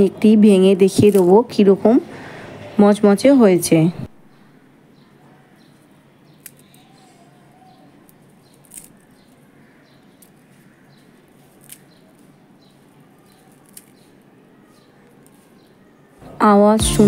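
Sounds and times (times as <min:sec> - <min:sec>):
fried sweet cracking by hand: 0:06.3 - 0:07.1, 0:08.0 - 0:15.6.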